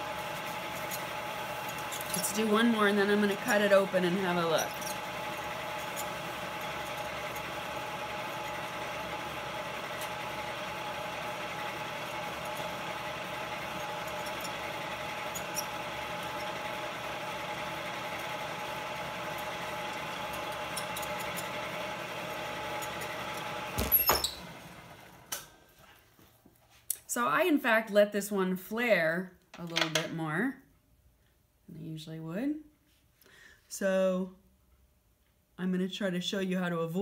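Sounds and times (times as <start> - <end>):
pottery wheel motor whining: 0.0 - 25.6.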